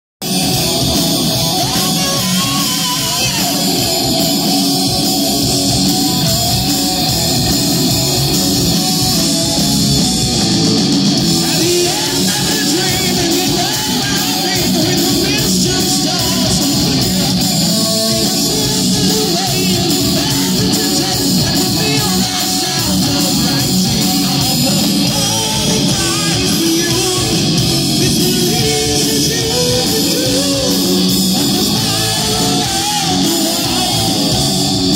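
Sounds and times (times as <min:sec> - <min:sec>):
rock band playing: 0:00.2 - 0:34.9
man singing: 0:01.4 - 0:04.1, 0:11.3 - 0:34.9.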